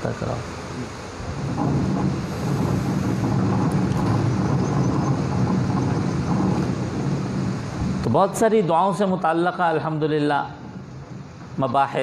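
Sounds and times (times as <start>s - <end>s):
low engine drone: 1.0s - 8.4s.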